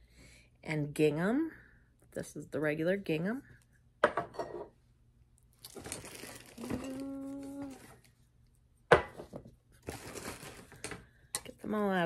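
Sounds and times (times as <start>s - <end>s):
packaging crinkling: 5.6s - 8.1s, 9.8s - 11.0s.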